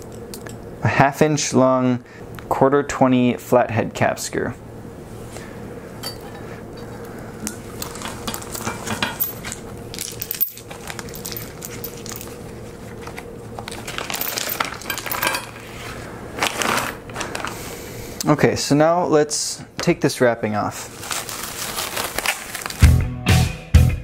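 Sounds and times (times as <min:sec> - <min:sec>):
small screws clinking together: 0:07.8 - 0:12.4, 0:13.9 - 0:15.6
plastic bag crinkling: 0:09.4 - 0:17.6, 0:20.8 - 0:22.9.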